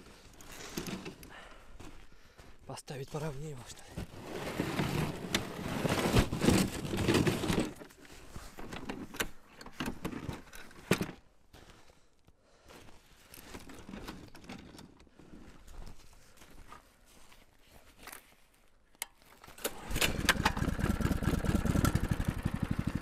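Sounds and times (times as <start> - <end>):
snowmobile clattering and scraping: 4.0 - 11.2, 19.7 - 23.0.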